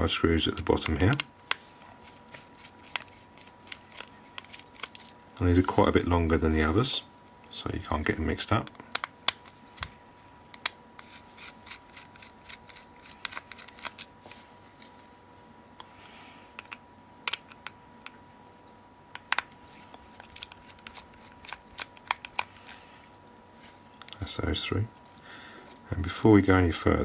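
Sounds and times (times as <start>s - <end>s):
screwdriver clicking and scraping: 2.0s - 5.2s, 10.6s - 14.1s, 20.1s - 22.8s.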